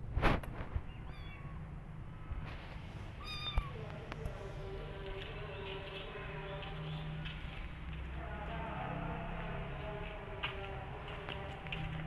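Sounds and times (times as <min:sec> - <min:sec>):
kitten mewing: 0:00.9 - 0:01.7, 0:03.1 - 0:03.8.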